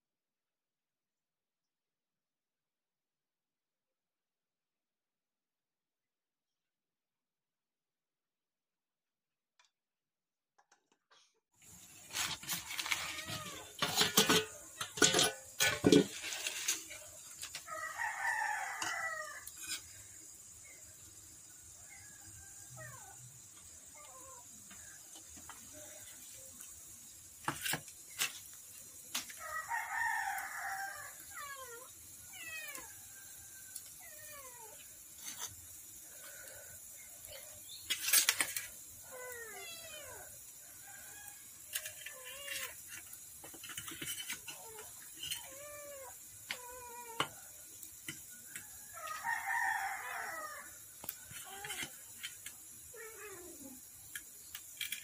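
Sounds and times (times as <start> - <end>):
rooster crowing: 17.5 - 19.7, 29.4 - 31.8, 40.6 - 41.9, 48.4 - 51.8.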